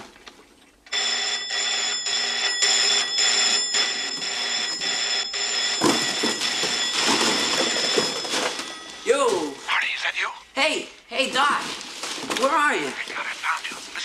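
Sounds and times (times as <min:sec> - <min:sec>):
electric telephone bell ringing: 0:00.9 - 0:09.6
papers rustling and clattering: 0:05.6 - 0:09.5, 0:11.3 - 0:14.0.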